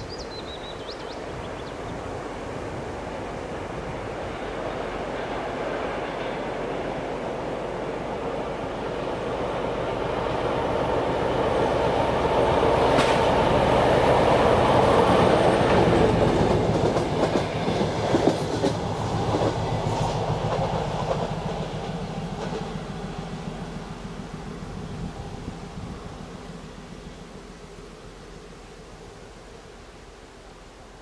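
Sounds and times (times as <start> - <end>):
diesel locomotive engine passing: 0.0 - 31.0
train wheels clicking over rail joints: 12.7 - 13.7, 14.7 - 23.3.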